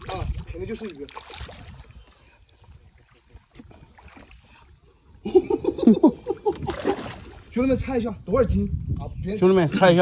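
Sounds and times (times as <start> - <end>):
water splashing: 0.0 - 5.2, 6.1 - 7.9.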